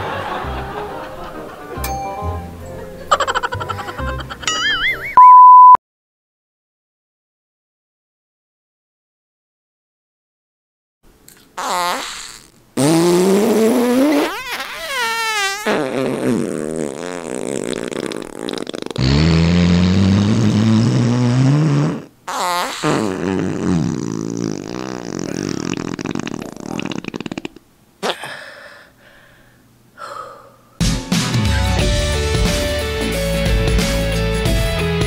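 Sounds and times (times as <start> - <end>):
comic fart sound effects: 11.6 - 28.2.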